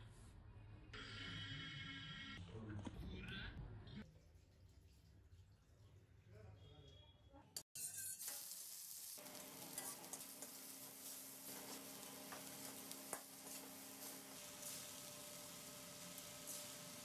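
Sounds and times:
metal spatula scraping a wok: 0:07.8 - 0:17.0
stir-fry sizzling in wok: 0:07.8 - 0:17.0.

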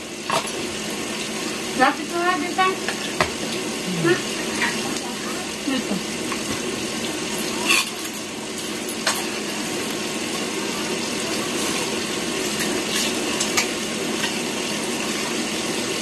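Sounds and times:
spoons clinking on plates: 0:07.6 - 0:09.4.

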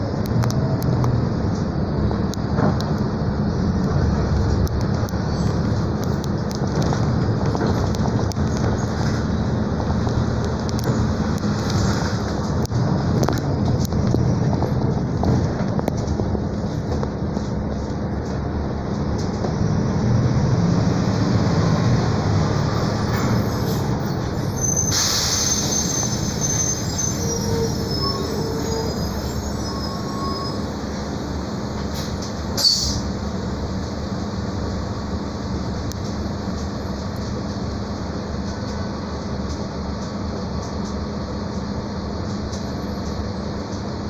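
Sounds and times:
bus engine and road rumble: 0:00.0 - 0:44.0
high-pitched squeal: 0:22.7 - 0:31.1, 0:32.0 - 0:33.1.

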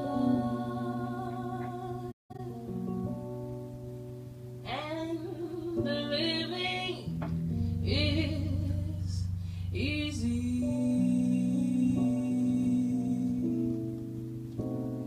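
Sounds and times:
person singing with vibrato: 0:00.0 - 0:02.7, 0:07.9 - 0:14.0
held piano chords: 0:00.0 - 0:15.0
sustained bass notes: 0:06.2 - 0:14.2.

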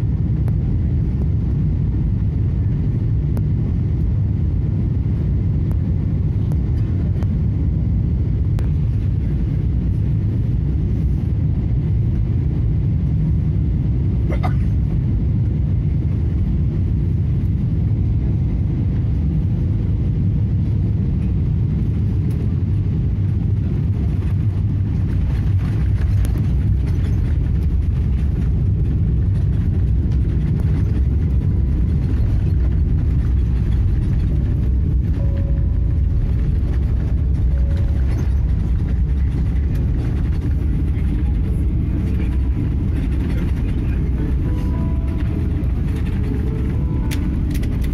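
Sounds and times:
airliner engines rumbling: 0:00.0 - 0:47.9
wheels rolling on runway: 0:21.8 - 0:47.9.

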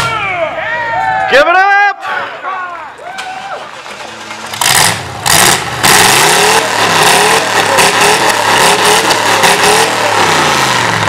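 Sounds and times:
spinning tires hissing: 0:03.7 - 0:11.0
pickup engine revving hard: 0:04.5 - 0:11.0.

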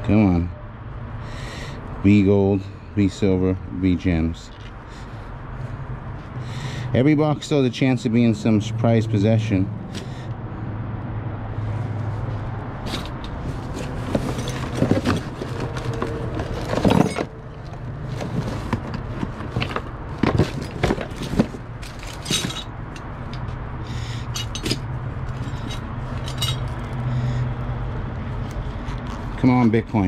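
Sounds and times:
coins and trinkets clinking: 0:16.6 - 0:17.4, 0:21.8 - 0:23.5, 0:24.2 - 0:27.0.

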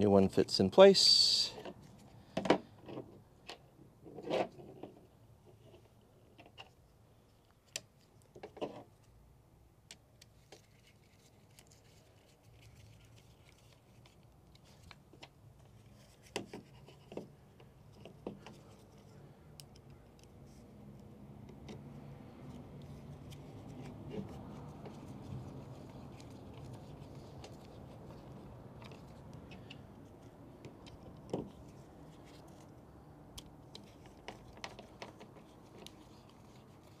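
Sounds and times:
plastic parts clicking and scraping: 0:01.6 - 0:09.2, 0:22.5 - 0:37.0.

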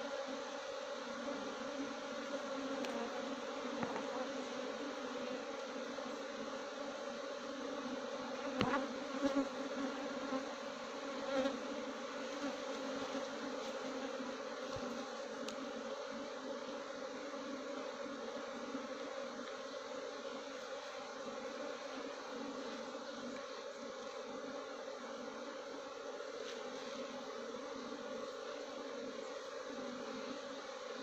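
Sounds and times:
bees buzzing: 0:00.0 - 0:31.0.

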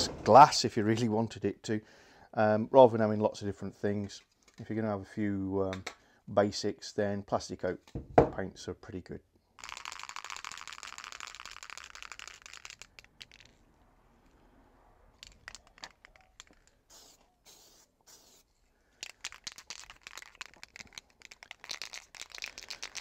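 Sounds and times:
aerosol can ball rattling: 0:09.6 - 0:13.6, 0:15.2 - 0:23.0
spray can hissing: 0:15.2 - 0:23.0.

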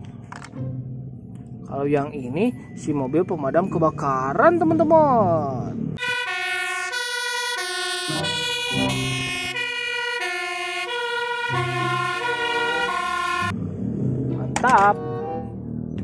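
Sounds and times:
fire engine two-tone siren: 0:06.0 - 0:13.6.

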